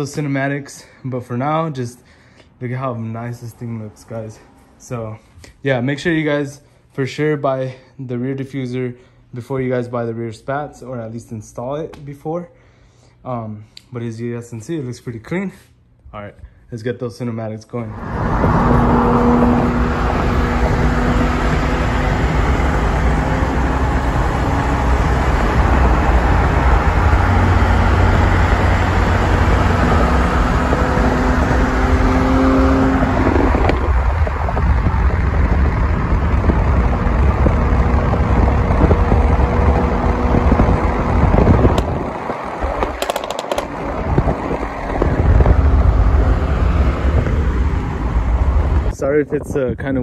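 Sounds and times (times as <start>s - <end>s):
car engine driving past: 17.9s - 48.9s
wind rumble on microphone: 17.9s - 50.0s
sharp clicks: 42.8s - 43.8s.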